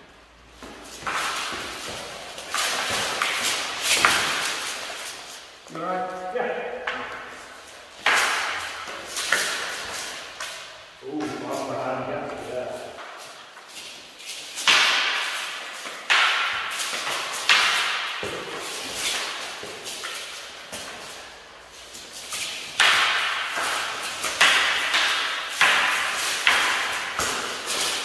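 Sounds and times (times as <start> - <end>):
wooden spears clacking together: 22.3 - 28.0.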